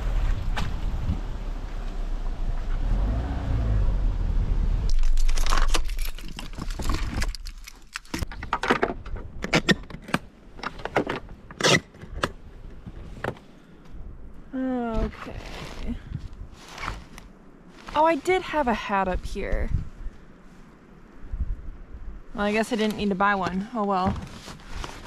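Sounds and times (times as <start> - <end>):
wind on microphone: 0.0 - 1.6, 15.0 - 17.0, 19.0 - 25.0.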